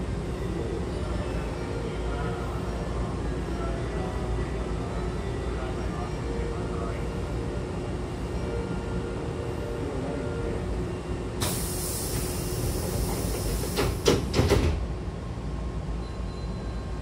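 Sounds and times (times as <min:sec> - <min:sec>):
train hum: 0:00.0 - 0:17.0
air hiss: 0:11.4 - 0:14.4
sliding doors knocking shut: 0:13.1 - 0:14.8.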